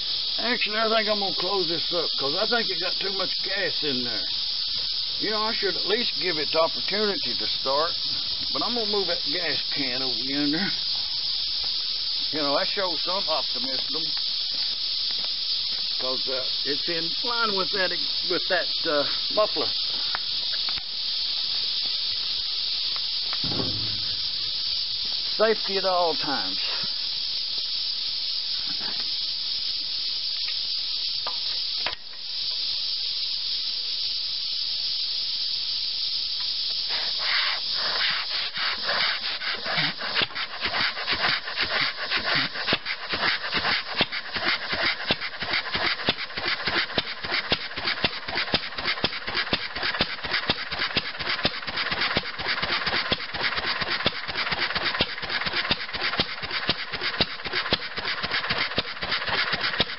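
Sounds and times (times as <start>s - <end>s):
steady high hiss: 0.0s - 59.9s
flywheel engine running: 42.4s - 59.9s.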